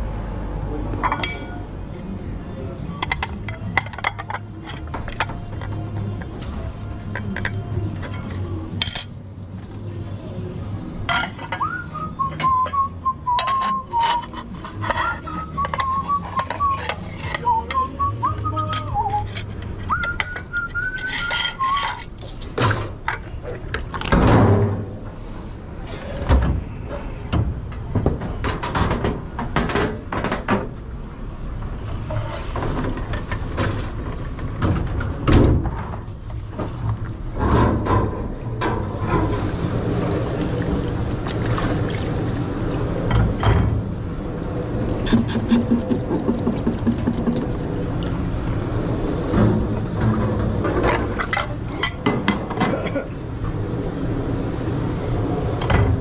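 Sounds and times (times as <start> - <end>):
dishes clattering: 1.0 - 1.6, 3.0 - 6.3, 11.0 - 17.8, 18.5 - 23.3, 49.2 - 53.2
person whistling a tune: 11.6 - 19.3, 19.9 - 22.0
low machine hum: 36.1 - 56.0.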